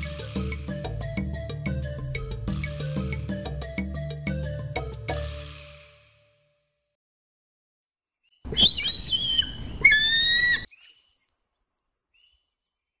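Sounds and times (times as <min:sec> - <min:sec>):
screeching bird of prey calls: 0:08.5 - 0:10.7.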